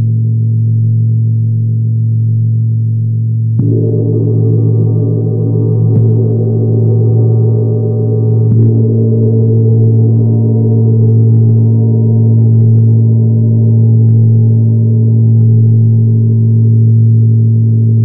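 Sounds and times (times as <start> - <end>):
gong ringing: 3.6 - 12.4.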